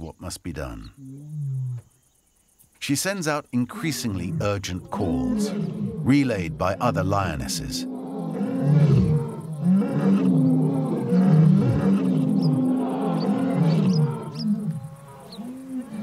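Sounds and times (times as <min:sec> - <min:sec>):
lioness calling: 0:03.5 - 0:16.0.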